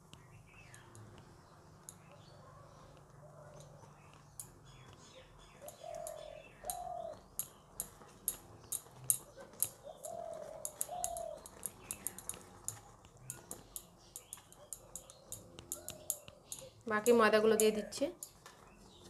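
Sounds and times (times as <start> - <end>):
dove cooing: 5.2 - 7.3, 9.2 - 12.2.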